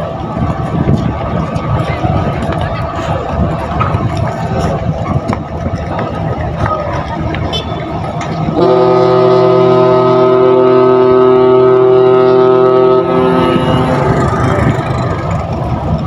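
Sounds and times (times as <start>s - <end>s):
ship's horn blast: 7.5s - 15.3s.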